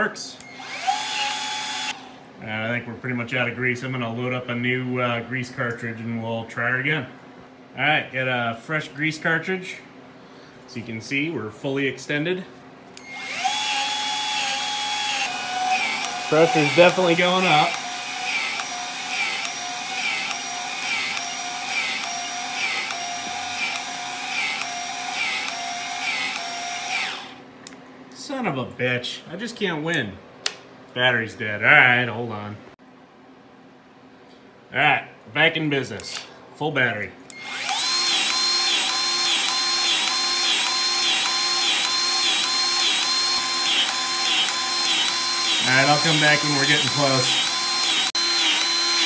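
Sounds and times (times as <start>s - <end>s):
grease gun motor whine: 0.4s - 2.1s, 13.0s - 27.4s, 37.3s - 49.0s
battery grease gun pumping: 37.4s - 49.0s.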